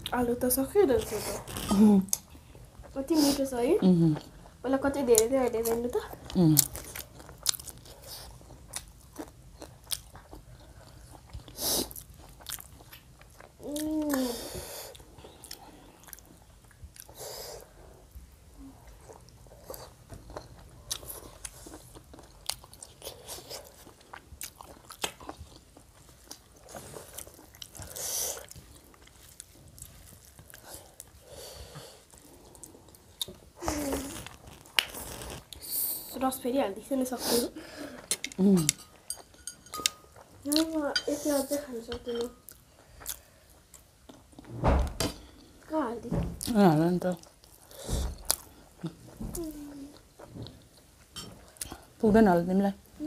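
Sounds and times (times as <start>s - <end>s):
close chewing with mouth clicks: 4.1s - 18.2s, 18.8s - 36.2s, 42.4s - 44.4s, 46.4s - 51.9s.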